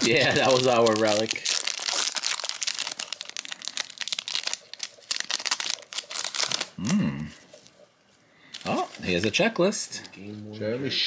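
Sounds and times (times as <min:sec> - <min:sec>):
foil wrapper crinkling and tearing: 0:00.0 - 0:06.9
person humming: 0:06.8 - 0:07.4.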